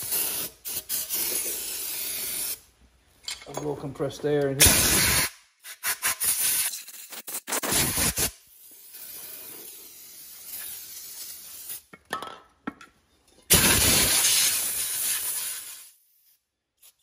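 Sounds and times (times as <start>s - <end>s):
aerosol spray hiss: 0.0s - 2.6s, 4.6s - 11.8s, 13.5s - 16.4s
compressed air blasts: 4.6s - 11.8s, 13.5s - 16.0s.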